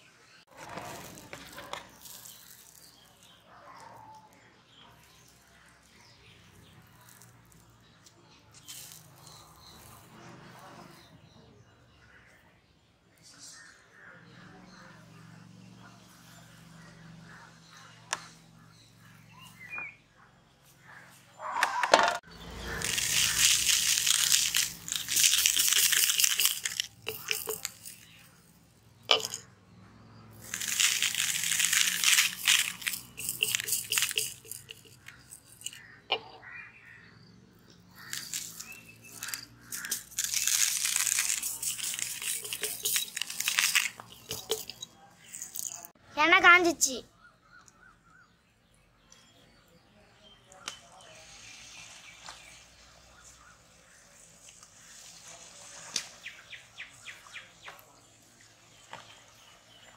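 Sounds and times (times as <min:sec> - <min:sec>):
sprinkles rattling into plastic tray: 0:00.6 - 0:03.3, 0:08.6 - 0:10.0, 0:22.7 - 0:28.3, 0:29.1 - 0:29.4, 0:30.4 - 0:35.8, 0:38.0 - 0:45.9.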